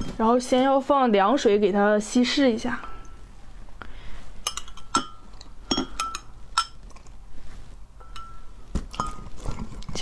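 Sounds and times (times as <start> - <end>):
spoon clinking on glass: 4.4 - 6.8, 8.0 - 9.3.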